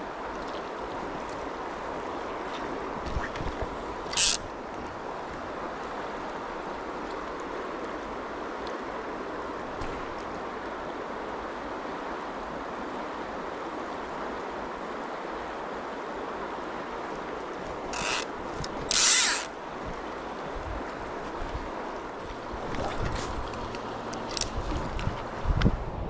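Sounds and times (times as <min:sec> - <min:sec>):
river water running: 0:00.0 - 0:26.0
fishing reel ratchet clicking: 0:18.0 - 0:18.3, 0:18.9 - 0:19.5.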